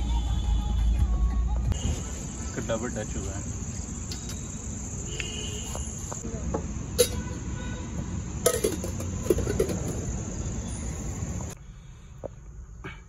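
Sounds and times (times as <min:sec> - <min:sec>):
crickets trilling: 0:01.8 - 0:11.6
sharp clicks and clinks: 0:07.0 - 0:07.3, 0:08.5 - 0:10.0.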